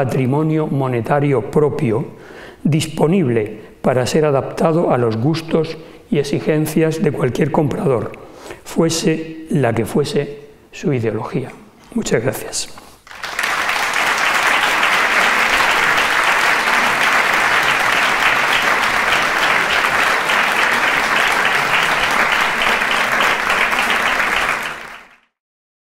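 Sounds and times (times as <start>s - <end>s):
audience applauding: 13.1s - 25.3s.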